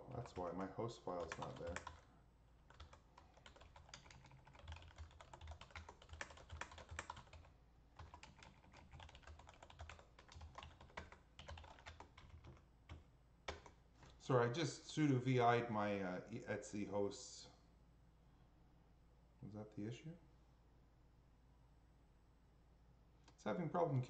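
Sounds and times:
typing on computer keyboard: 0:00.2 - 0:02.0, 0:02.7 - 0:13.8.

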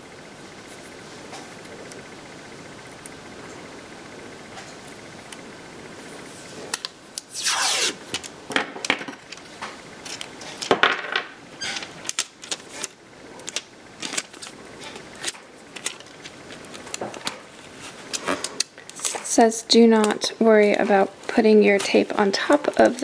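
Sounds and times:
tape tearing off roll: 0:07.2 - 0:08.2
clicks and rustles of tape: 0:11.6 - 0:19.4.

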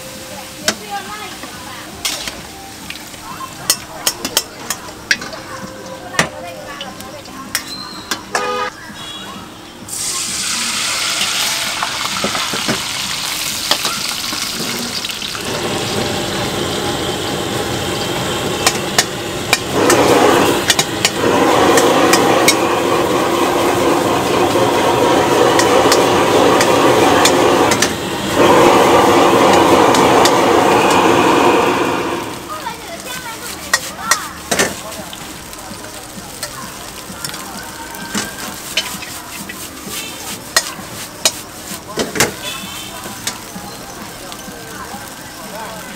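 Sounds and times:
food sizzling in a wok: 0:00.0 - 0:45.9
burner flame rushing: 0:14.6 - 0:37.1
metal ladle scraping a pan: 0:38.1 - 0:42.9.

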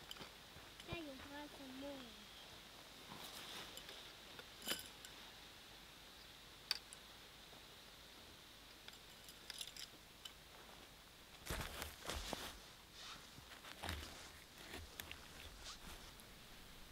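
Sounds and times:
tent gear clicking: 0:13.4 - 0:16.2.

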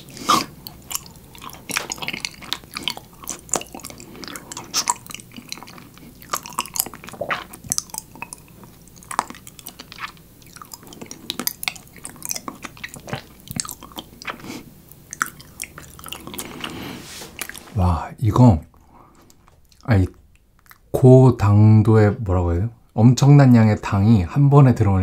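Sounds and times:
chewing honeycomb: 0:00.0 - 0:17.8, 0:19.2 - 0:20.9.

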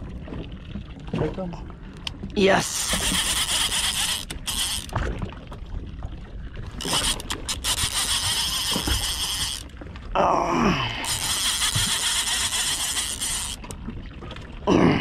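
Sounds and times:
fishing reel whirring: 0:02.6 - 0:05.0, 0:06.8 - 0:09.7, 0:11.0 - 0:13.7.

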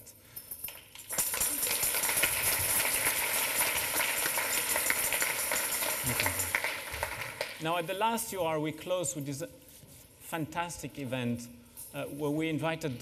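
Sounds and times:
audience applauding: 0:01.2 - 0:07.6.

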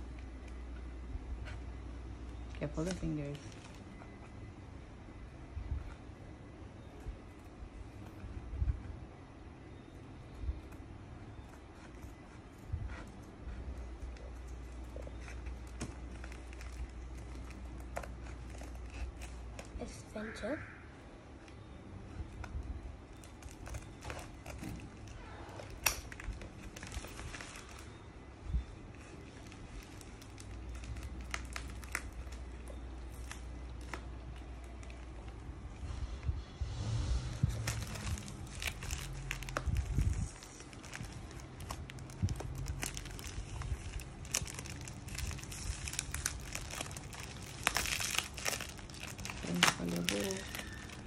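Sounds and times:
plastic crinkling: 0:02.2 - 0:04.2, 0:11.3 - 0:20.0, 0:21.4 - 0:36.8, 0:37.4 - 0:51.0
scissors snipping plastic: 0:23.4 - 0:26.4.

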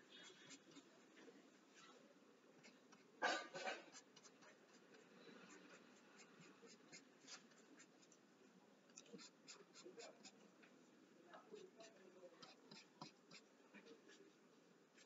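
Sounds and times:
pencil scratching on paper: 0:00.0 - 0:01.0, 0:02.6 - 0:08.2, 0:09.0 - 0:10.4, 0:11.5 - 0:15.0.

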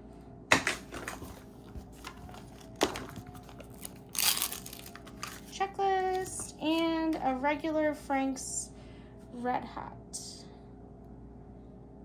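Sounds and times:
plastic crinkling: 0:00.9 - 0:06.6.

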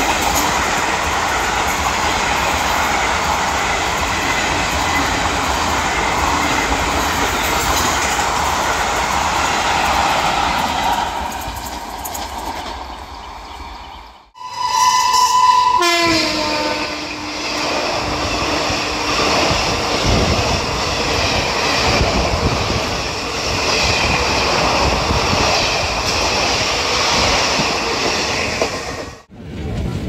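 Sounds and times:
train coaches rushing and rattling: 0:00.0 - 0:30.0
train horn: 0:14.4 - 0:19.6.

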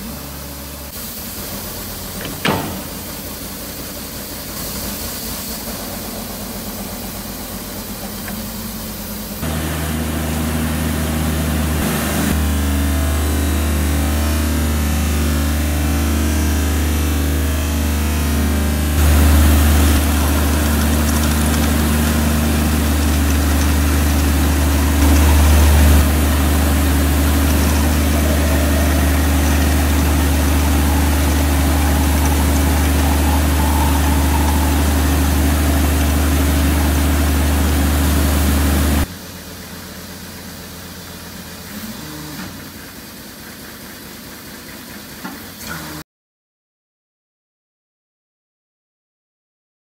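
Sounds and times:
drill rig running: 0:00.0 - 0:39.1.

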